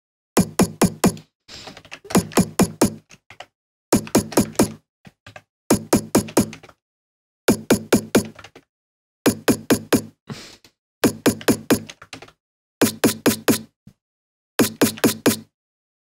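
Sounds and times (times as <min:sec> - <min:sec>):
electronic snare drum hits: 0:00.4 - 0:01.2, 0:05.7 - 0:06.4, 0:07.5 - 0:08.2, 0:09.3 - 0:10.1, 0:12.8 - 0:13.7.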